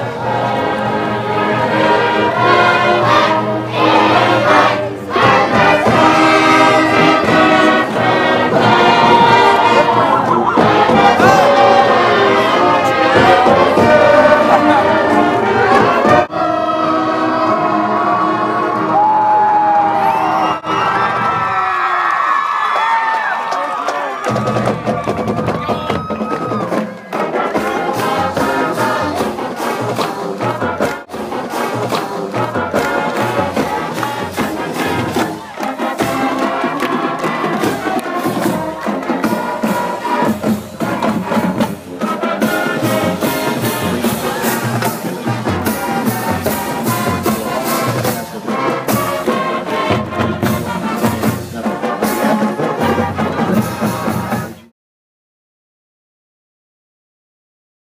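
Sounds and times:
marching band brass: 0.0 - 22.5, 23.4 - 54.7
crowd noise: 0.0 - 54.7
pounding drum beat: 2.8 - 16.3, 24.2 - 54.6.

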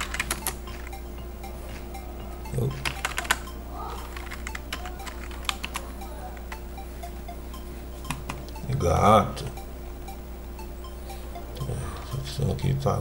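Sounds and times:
keyboard keys clicking: 0.0 - 7.3, 8.0 - 8.8
steady low hum: 0.0 - 13.0.

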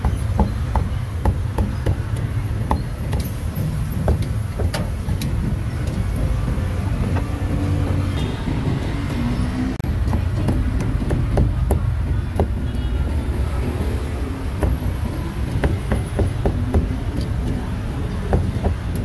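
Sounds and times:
cleaver chopping on wooden block: 0.0 - 3.3, 14.4 - 17.6.

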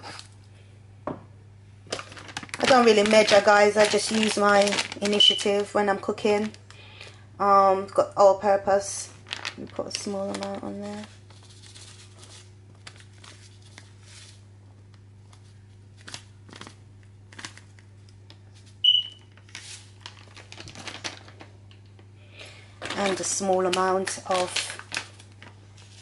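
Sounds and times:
low steady hum: 0.0 - 26.0
plastic packet crinkling: 1.8 - 7.2, 8.8 - 14.4, 15.3 - 26.0
short high beep: 18.8 - 19.2.

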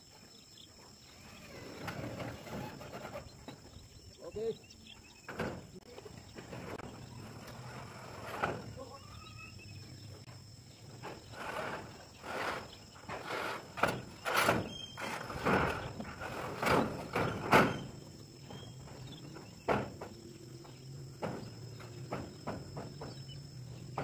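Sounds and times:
insects whining: 0.0 - 24.0
footsteps on steel roof: 13.0 - 24.0.

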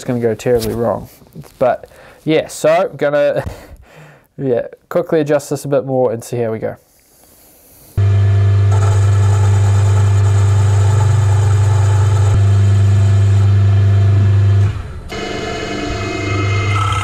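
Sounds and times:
milling machine motor hum: 8.0 - 17.0.

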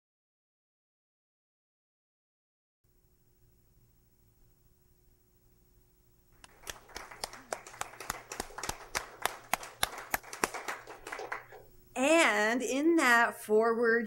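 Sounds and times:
small group applauding: 6.4 - 11.7.

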